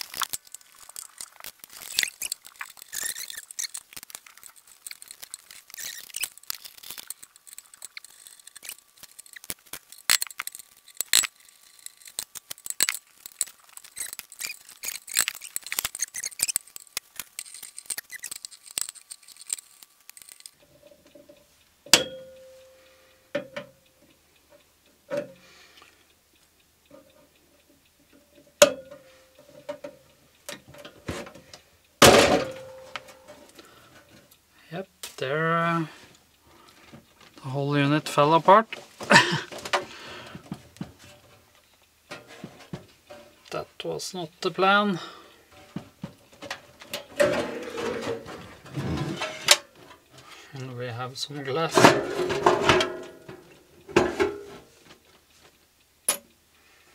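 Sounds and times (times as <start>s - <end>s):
screws clicking and scraping: 0.0s - 21.5s.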